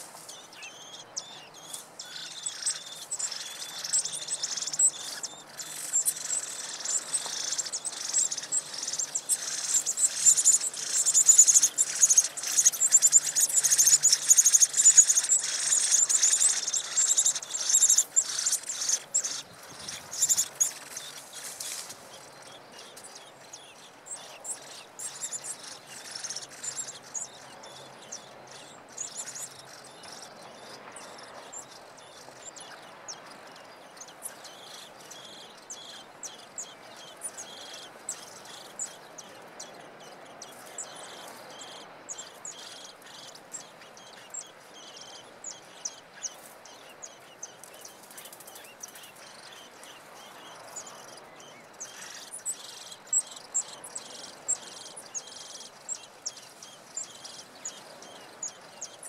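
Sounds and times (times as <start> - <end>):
faint outdoor hiss: 0.0 - 59.0
high-pitched chirps and ticks: 1.7 - 21.2.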